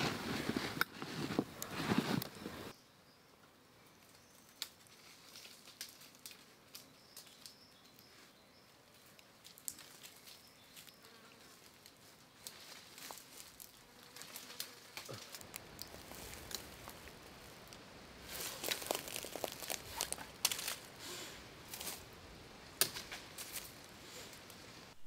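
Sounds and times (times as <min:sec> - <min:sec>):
faint small clicks and ticks: 0:04.0 - 0:08.1, 0:09.0 - 0:11.0.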